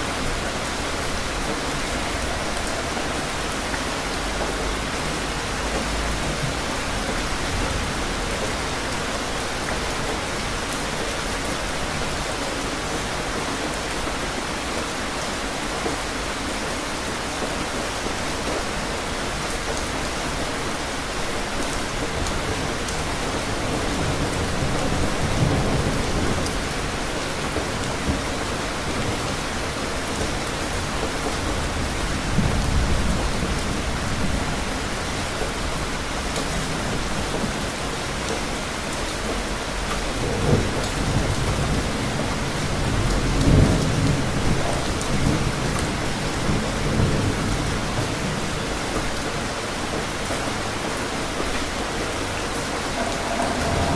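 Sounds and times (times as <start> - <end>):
steady rain: 0.0 - 53.9
thunder rumbling: 0.1 - 8.9, 51.6 - 53.9.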